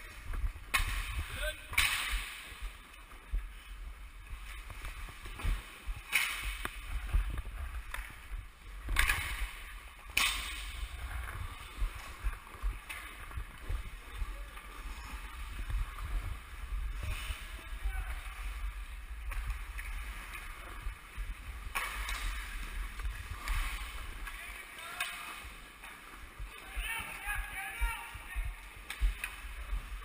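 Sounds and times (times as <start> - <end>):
low wind rumble on microphone: 2.6 - 10.0, 10.6 - 24.2.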